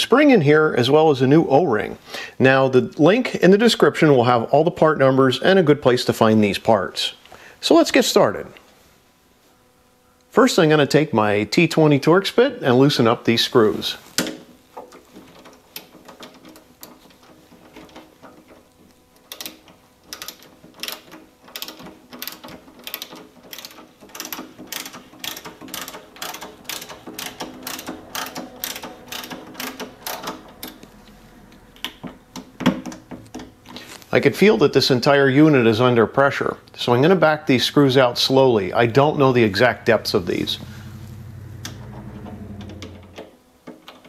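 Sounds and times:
ratcheting screwdriver clicking: 19.2 - 30.8.

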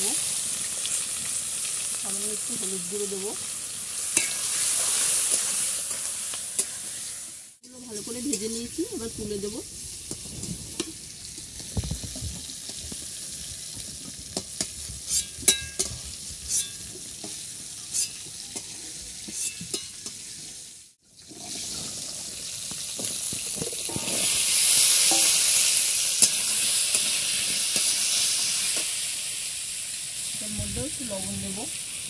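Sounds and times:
oil sizzling: 0.0 - 32.0
potatoes frying in hot oil: 0.0 - 32.0
metal spatula scraping wok: 14.3 - 20.6, 23.8 - 28.9.

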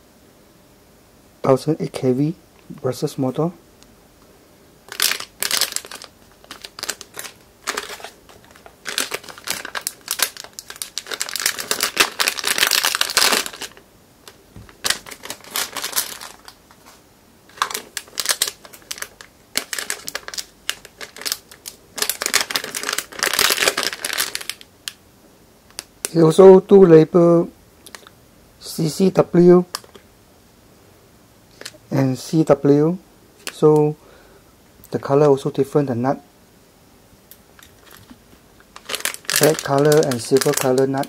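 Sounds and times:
plastic bags crinkling: 4.9 - 25.0, 29.7 - 30.0, 31.5 - 31.8, 37.6 - 41.0.

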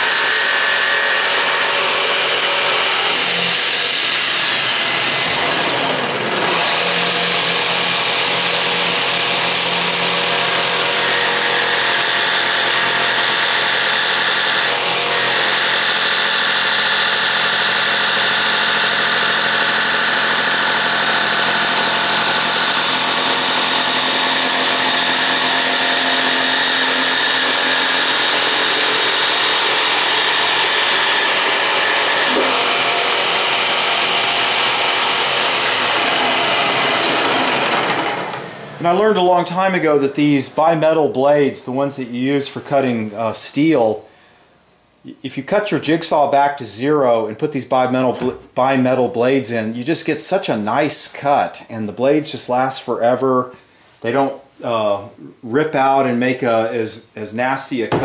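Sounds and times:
jigsaw cutting wood: 0.0 - 39.1
dust extractor running: 0.0 - 40.4.

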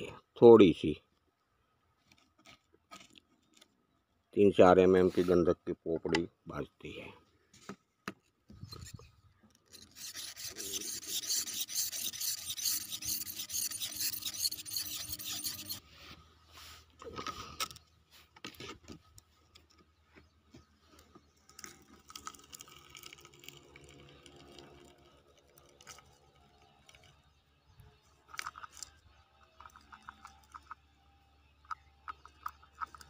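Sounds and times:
rod scraping inside clay pot: 8.6 - 15.9.

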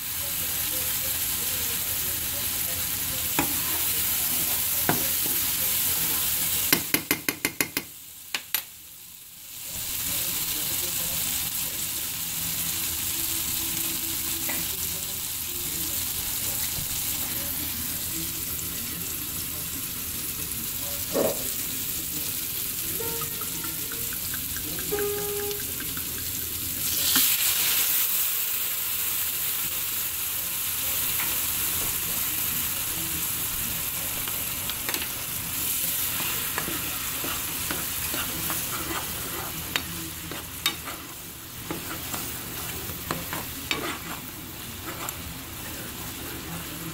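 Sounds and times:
mushrooms sizzling in frying pan: 0.0 - 46.9
utensil tapping against pan: 6.7 - 8.6, 23.0 - 26.5.

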